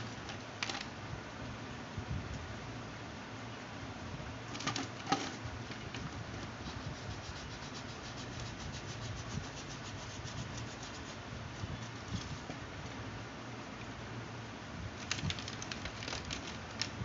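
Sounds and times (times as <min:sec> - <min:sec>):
felt-tip pen rubbing on plastic: 0:06.6 - 0:12.5.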